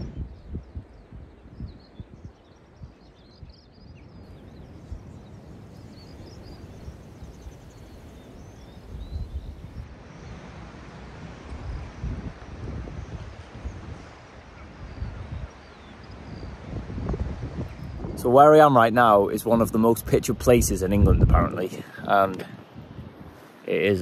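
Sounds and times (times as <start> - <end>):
wind buffeting microphone: 0.0 - 10.3, 11.2 - 24.0
birds chirping: 4.1 - 9.8.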